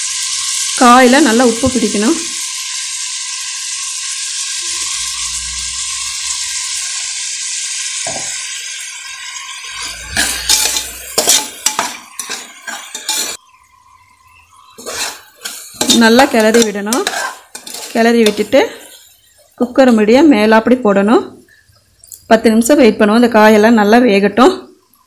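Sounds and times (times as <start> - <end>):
vegetables sizzling in hot oil: 0.0 - 25.0
spatula scraping a pot: 9.7 - 13.4, 14.8 - 19.5.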